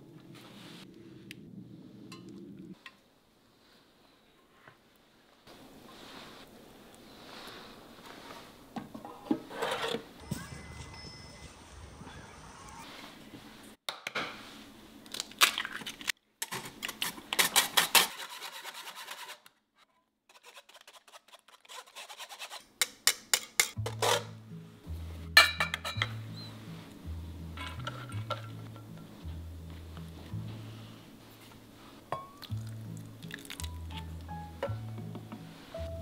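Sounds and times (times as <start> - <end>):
soft background music: 23.8 - 36.0.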